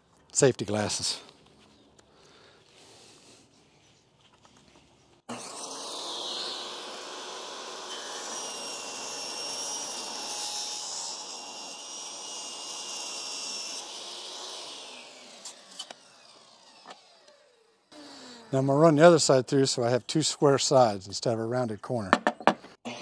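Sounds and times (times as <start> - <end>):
table saw whining through wood: 5.2 - 19.1.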